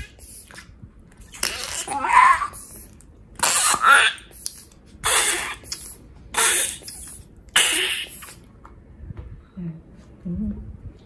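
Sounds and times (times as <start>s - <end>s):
squelching fart-like bursts: 0.0s - 8.5s.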